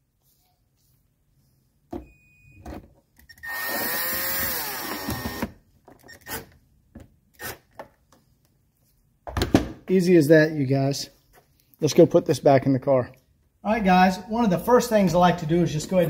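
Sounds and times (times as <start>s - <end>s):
cordless drill whirring: 3.4s - 5.6s.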